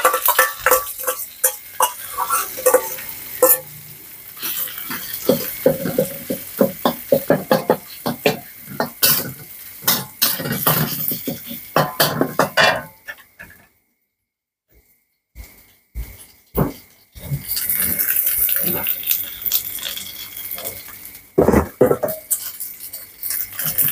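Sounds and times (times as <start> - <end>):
metal spatula scraping metal: 0.0 - 8.2
garlic sizzling in a wok: 0.0 - 13.6, 16.2 - 23.9.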